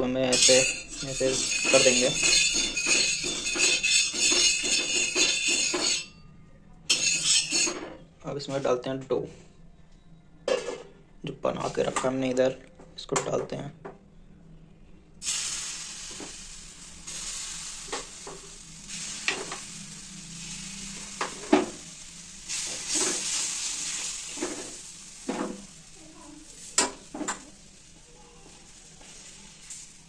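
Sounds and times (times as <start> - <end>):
batter sizzling on hot pan: 0.3 - 6.0, 15.2 - 30.0
spoon scraping metal pan: 0.3 - 6.1, 6.9 - 7.9.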